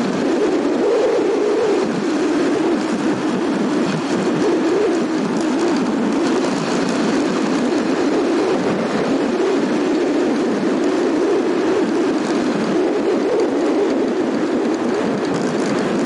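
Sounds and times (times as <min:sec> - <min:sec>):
rushing air: 0:00.0 - 0:16.0.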